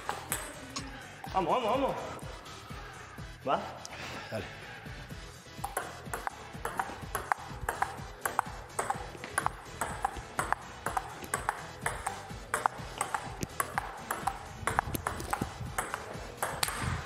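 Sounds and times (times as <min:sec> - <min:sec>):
table tennis ball clicking: 0:00.0 - 0:00.6, 0:05.6 - 0:17.0
background music: 0:00.0 - 0:17.0.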